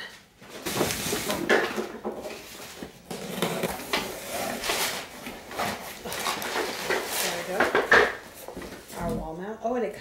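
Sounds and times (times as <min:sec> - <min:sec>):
cardboard box scraping and rustling: 0:02.3 - 0:07.6.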